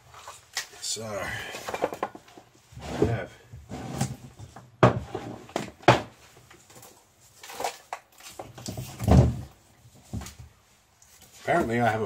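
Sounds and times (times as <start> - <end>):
objects knocking and clattering: 1.5 - 3.2, 4.0 - 10.5.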